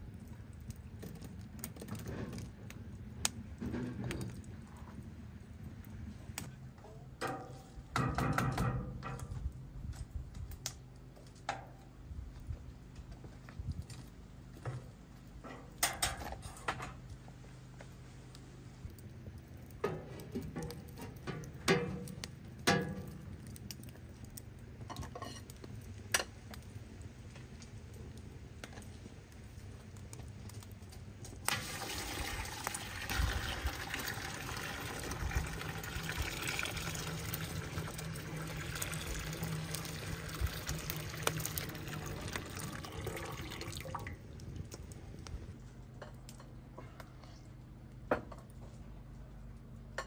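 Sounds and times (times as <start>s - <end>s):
water running into a container: 31.5s - 44.4s.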